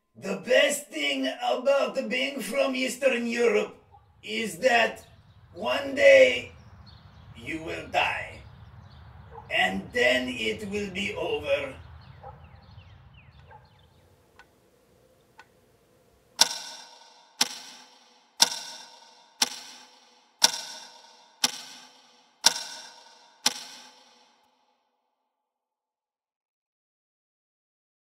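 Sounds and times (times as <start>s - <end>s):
clock ticking: 16.4s - 24.4s.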